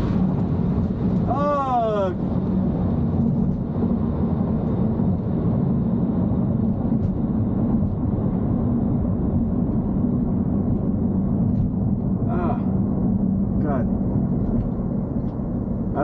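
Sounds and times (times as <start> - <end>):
road and tyre rumble in car: 0.0 - 16.0.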